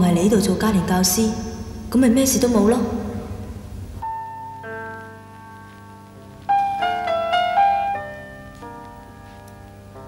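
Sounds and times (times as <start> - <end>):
soft keyboard chords: 3.2 - 10.0.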